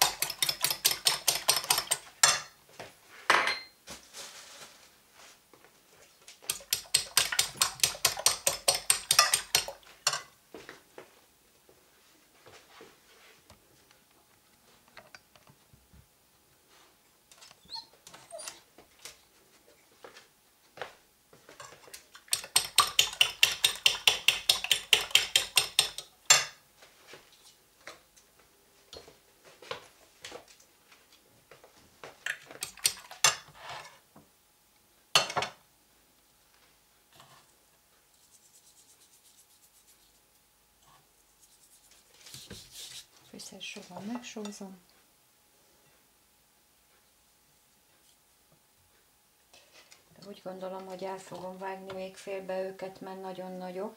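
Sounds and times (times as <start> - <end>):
fork beating eggs in bowl: 0.0 - 2.5, 6.4 - 10.3, 21.7 - 26.1, 32.3 - 33.5
dishes and cutlery clinking: 0.0 - 2.6, 3.3 - 3.8, 6.7 - 10.3.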